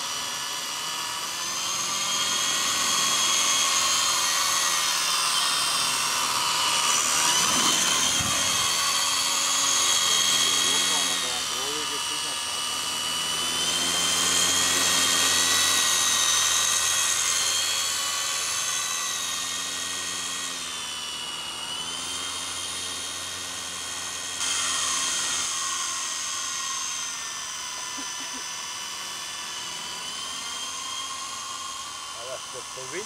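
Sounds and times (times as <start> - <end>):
model helicopter rotor whine: 0.0 - 33.0.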